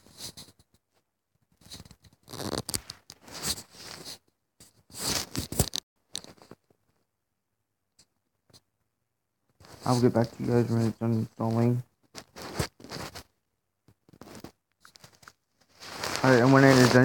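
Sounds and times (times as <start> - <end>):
rustling scraping noise: 1.6 - 4.2, 4.9 - 6.7, 9.6 - 13.3, 14.0 - 17.0.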